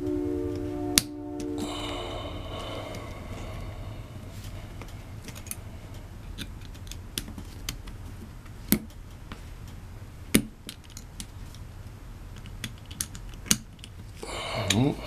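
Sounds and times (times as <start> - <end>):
lock pick clicking and scraping: 6.2 - 9.0, 12.3 - 14.1.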